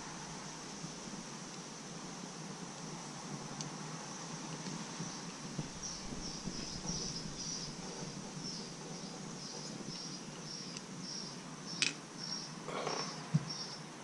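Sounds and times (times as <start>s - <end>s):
background hiss: 0.0s - 14.0s.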